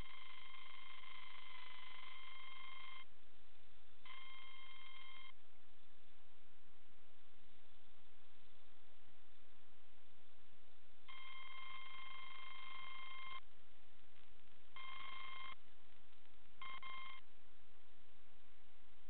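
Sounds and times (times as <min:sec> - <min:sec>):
electronic beeps: 0:11.1 - 0:13.4, 0:14.8 - 0:15.6, 0:16.6 - 0:17.2.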